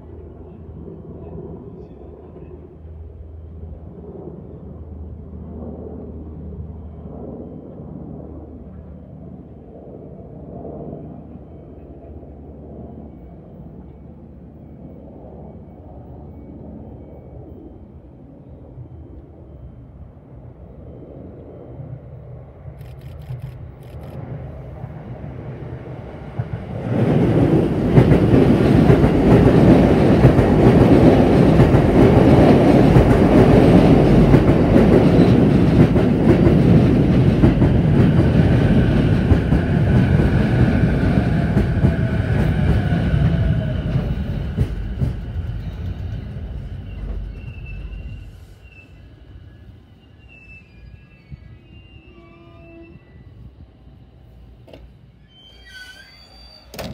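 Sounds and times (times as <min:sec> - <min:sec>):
faint falling train whine: 0:10.9 - 0:56.9
train wheels clattering on rails: 0:26.3 - 0:48.6.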